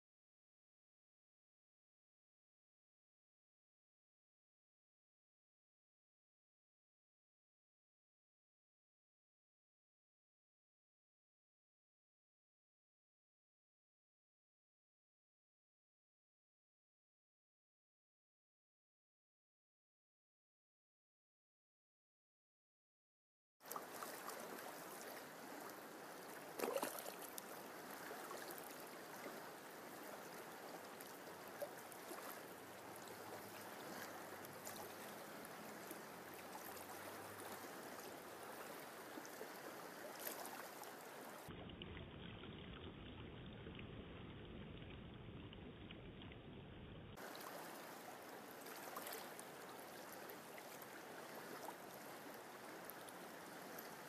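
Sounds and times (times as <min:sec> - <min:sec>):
stream water rushing: 0:23.6 - 0:41.5, 0:47.2 - 0:54.0.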